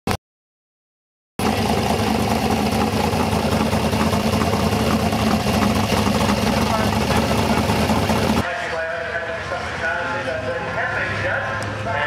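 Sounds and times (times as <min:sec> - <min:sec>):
car engine idling: 0:01.4 - 0:08.4.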